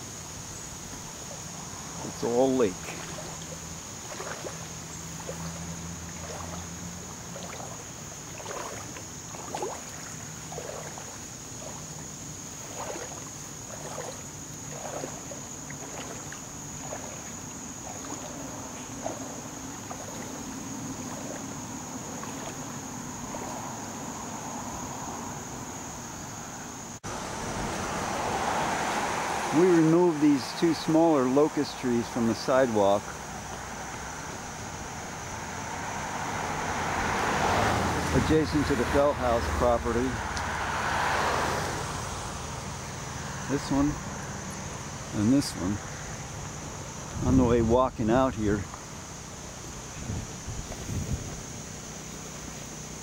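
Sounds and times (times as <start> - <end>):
faint high whine: 0.0 - 24.4
steady wash of noise: 0.0 - 25.0, 26.9 - 37.2.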